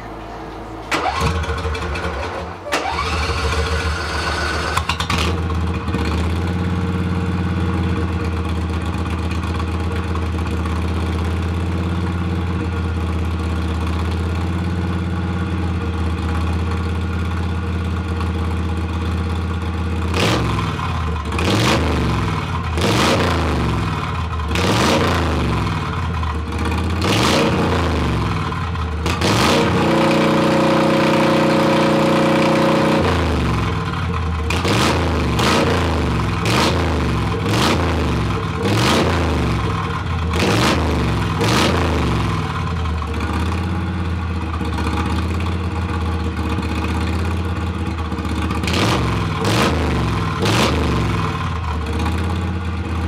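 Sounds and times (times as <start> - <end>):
lawn mower engine idling and revving: 0.0 - 53.0.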